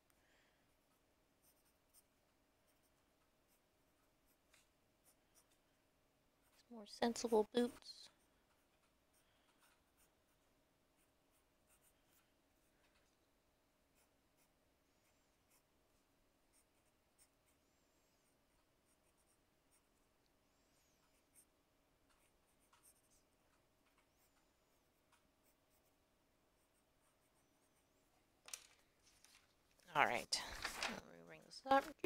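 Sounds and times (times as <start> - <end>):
faint steady hum: 0.0 - 32.0
pencil sketching on paper: 0.7 - 5.6, 6.4 - 12.8, 13.8 - 23.4, 24.0 - 28.1.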